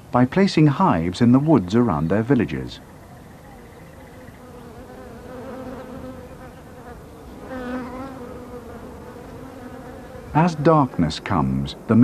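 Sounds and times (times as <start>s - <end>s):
bees buzzing: 2.8s - 12.0s.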